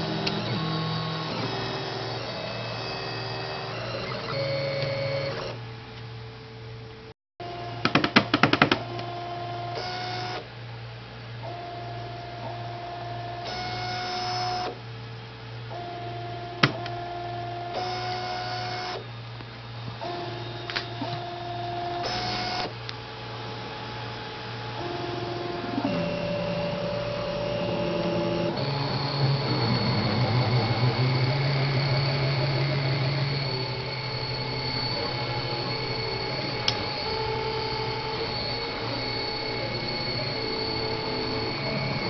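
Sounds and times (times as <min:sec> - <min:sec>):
stepper motors whining: 0:00.0 - 0:05.6, 0:20.0 - 0:22.8, 0:24.6 - 0:42.0
steady low hum: 0:19.2 - 0:42.0.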